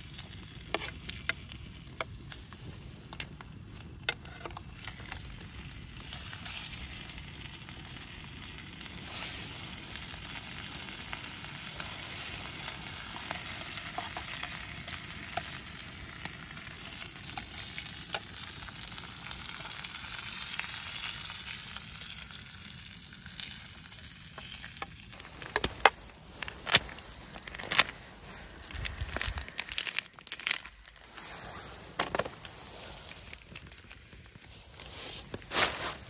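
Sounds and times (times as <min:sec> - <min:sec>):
food sizzling in a frying pan: 0:03.7 - 0:26.3.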